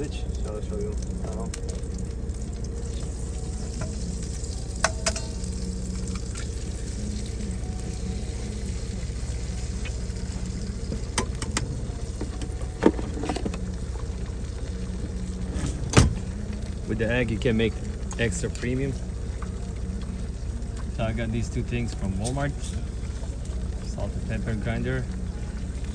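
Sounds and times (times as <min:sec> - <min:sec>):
egg sizzling in skillet: 0:00.0 - 0:25.9
low hum: 0:00.0 - 0:25.9.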